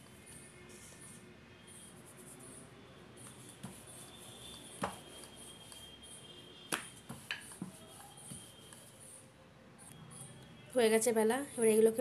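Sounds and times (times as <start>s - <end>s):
rolling pin rolling dough: 0.0s - 9.3s.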